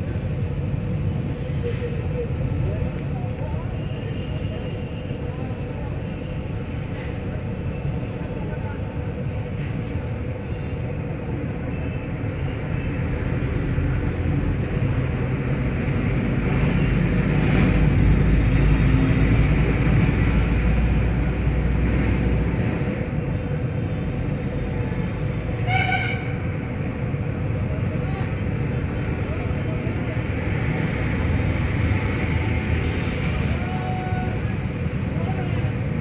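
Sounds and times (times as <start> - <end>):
passing vehicle rumble: 0.0 - 36.0
short horn toot: 25.6 - 26.4.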